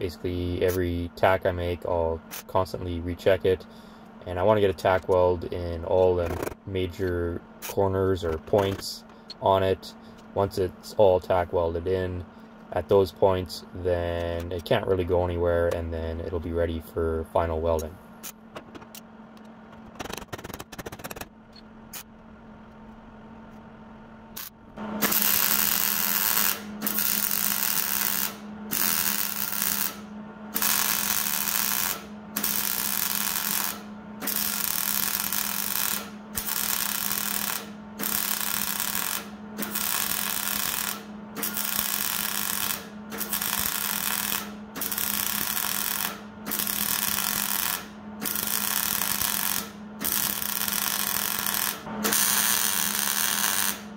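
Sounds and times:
welder arc bursts: 0:24.4 - 0:53.9.

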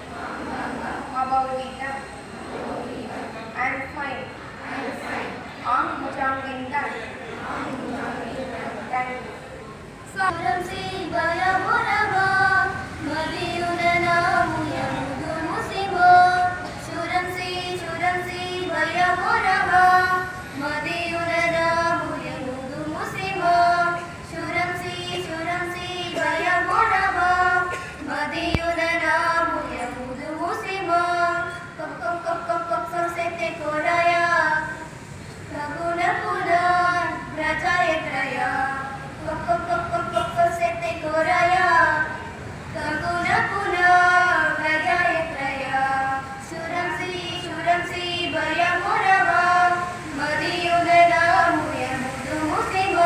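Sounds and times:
girls singing unaccompanied: 0:00.0 - 0:09.2, 0:09.8 - 0:53.0.

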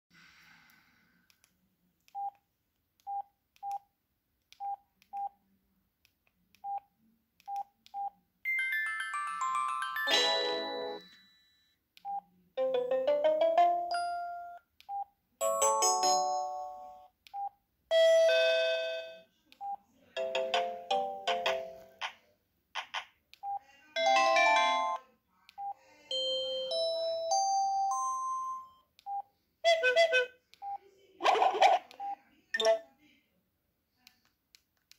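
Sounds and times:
polyphonic phone chimes and jingles: 0:08.5 - 0:11.6.

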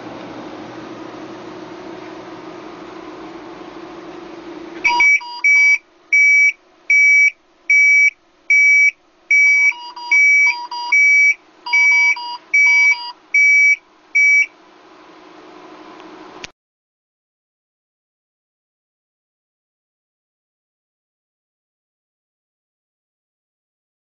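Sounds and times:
high-pitched alarm beeps: 0:04.8 - 0:14.5.

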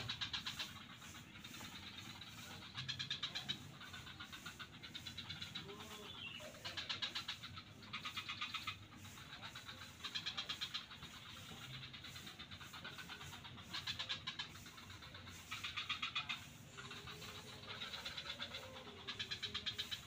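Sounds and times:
frogs calling: 0:00.0 - 0:20.0.

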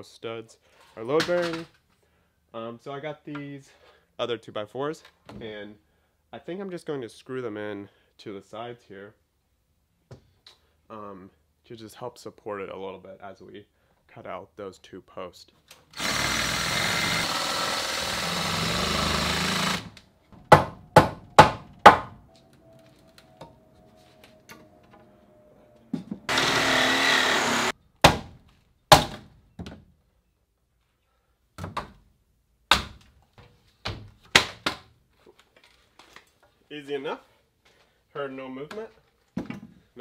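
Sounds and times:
power tool running: 0:16.0 - 0:20.0, 0:26.3 - 0:27.7
knocks and thunks on lumber: 0:20.4 - 0:22.2, 0:28.0 - 0:29.9.

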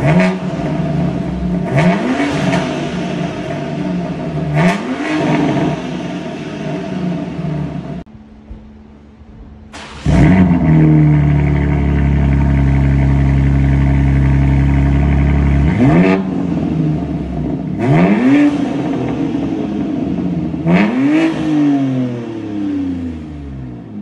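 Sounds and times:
car engine revving: 0:00.0 - 0:08.1, 0:09.3 - 0:24.0.

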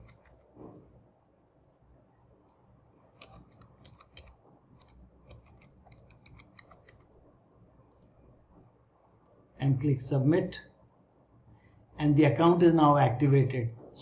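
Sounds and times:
faint keyboard typing: 0:00.0 - 0:01.0, 0:01.7 - 0:08.2.

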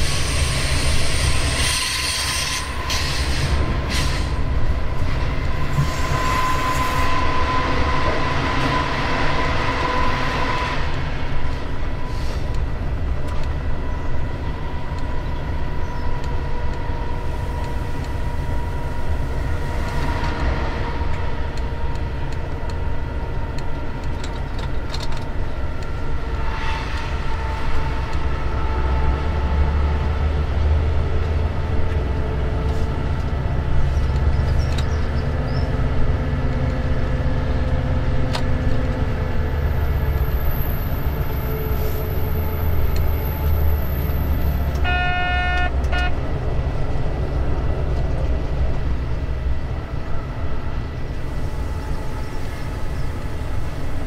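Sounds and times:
diesel locomotive engine rumble: 0:00.0 - 0:54.0
locomotive horn: 0:05.6 - 0:11.1, 0:41.0 - 0:46.4.

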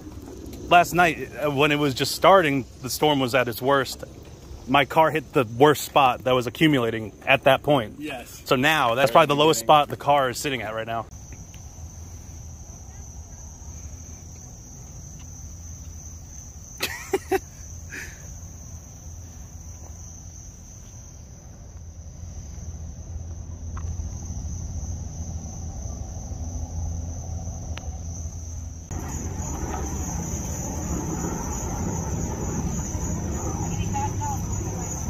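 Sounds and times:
high-pitched insect chorus: 0:00.0 - 0:35.0
low rumble: 0:21.6 - 0:35.0.

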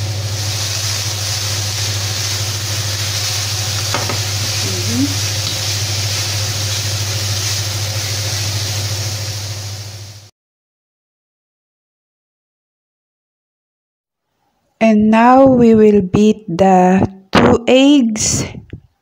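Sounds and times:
steady low hum: 0:00.0 - 0:10.3
vegetables sizzling in frying pan: 0:00.0 - 0:10.3.

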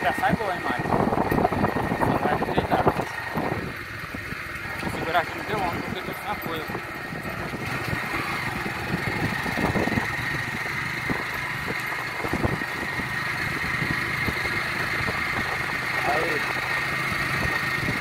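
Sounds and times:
motorcycle engine running: 0:00.0 - 0:18.0.

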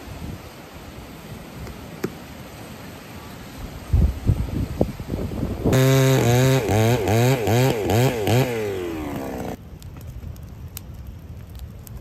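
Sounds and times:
chainsaw revving: 0:05.7 - 0:09.6.

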